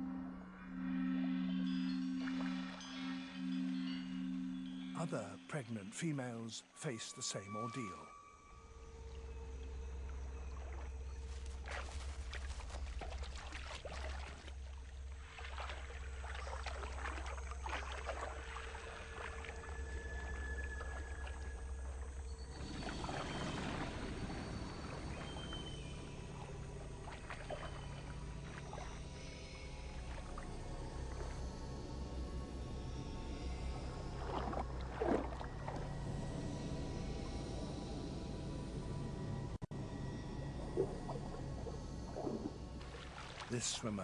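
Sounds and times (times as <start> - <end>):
water splashing and lapping: 1.2 - 5.9, 8.6 - 31.8, 32.9 - 36.6, 39.8 - 44.0
steady low rumble: 18.2 - 43.8.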